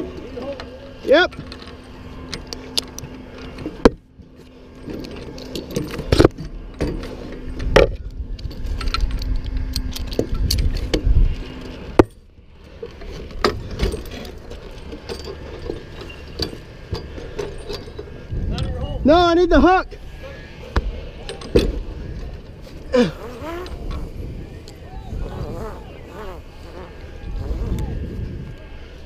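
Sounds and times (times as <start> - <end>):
metal hardware clinking and jangling: 4.7 - 7.5, 13.0 - 18.8, 21.2 - 21.8.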